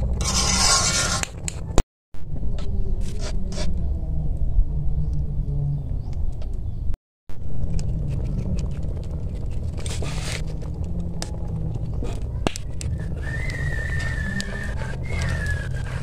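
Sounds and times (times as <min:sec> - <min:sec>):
low rumble: 0:00.0 - 0:16.0
spoon scraping: 0:00.2 - 0:01.2.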